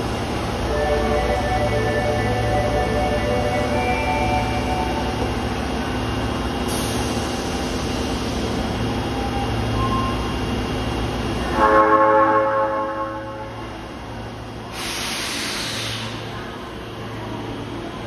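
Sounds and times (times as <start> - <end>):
train wheels and motors rumbling: 0.0 - 18.0
loud held tone: 0.7 - 5.8.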